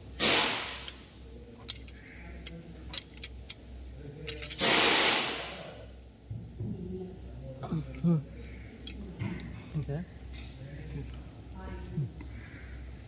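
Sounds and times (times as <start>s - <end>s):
steady low hum: 0.0s - 13.0s
metallic clicks of tools on engine: 0.5s - 1.0s, 1.6s - 4.8s, 8.8s - 9.6s.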